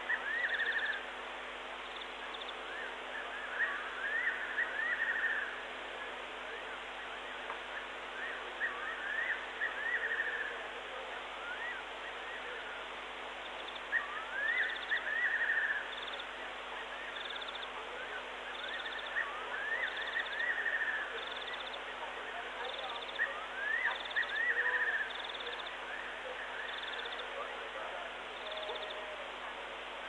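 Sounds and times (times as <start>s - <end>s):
night bird whistling call: 0.0s - 1.1s, 1.9s - 6.1s, 7.7s - 10.6s, 11.4s - 12.8s, 13.4s - 21.9s, 22.6s - 27.5s, 28.3s - 29.2s
steady hiss: 0.0s - 30.0s.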